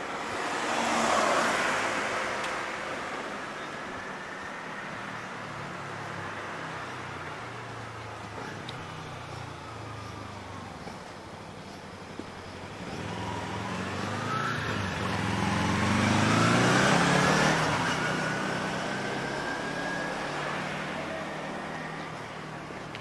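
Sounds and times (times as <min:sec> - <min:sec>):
vehicle passing by: 0:00.0 - 0:03.9, 0:12.6 - 0:23.0.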